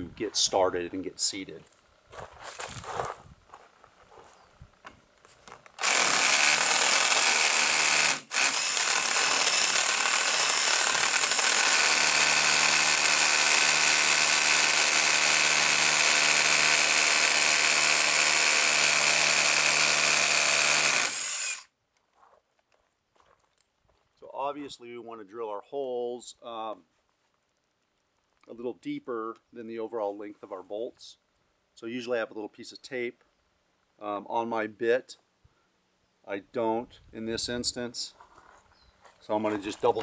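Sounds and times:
rotary hammer drilling concrete: 5.8s - 21.7s.

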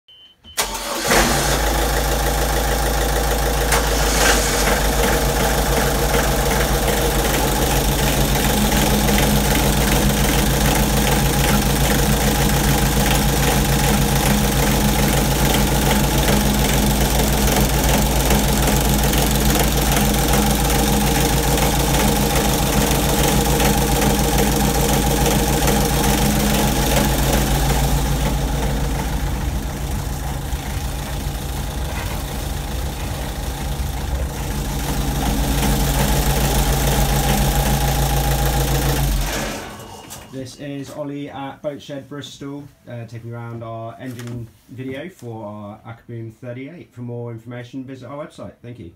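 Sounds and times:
boat diesel engine idling: 1.0s - 39.2s.

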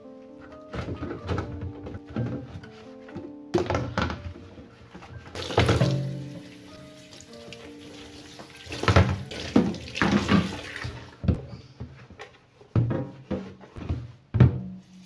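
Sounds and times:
plastic tub knocking on sink: 5.4s - 6.5s, 8.7s - 11.4s
tap water running into sink: 5.4s - 11.1s.

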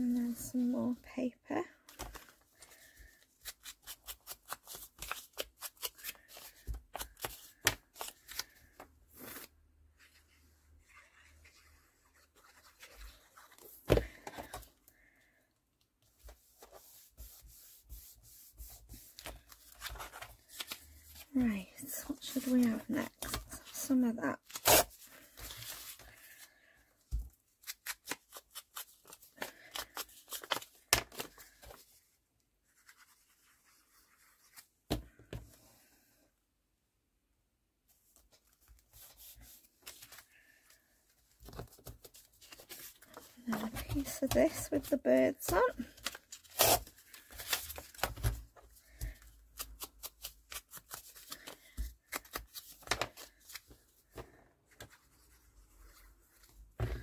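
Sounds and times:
paper rustling: 1.8s - 9.5s, 16.1s - 26.6s, 27.6s - 32.0s, 41.4s - 57.0s.

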